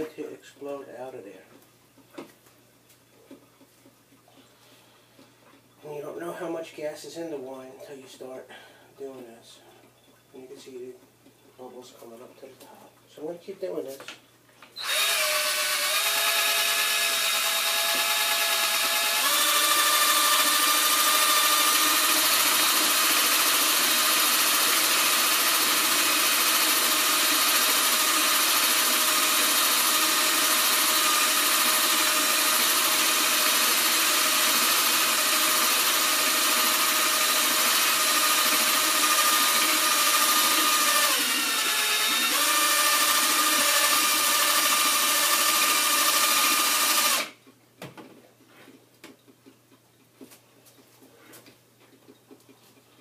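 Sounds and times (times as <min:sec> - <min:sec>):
electric drill motor whine: 0:14.8 - 0:47.3.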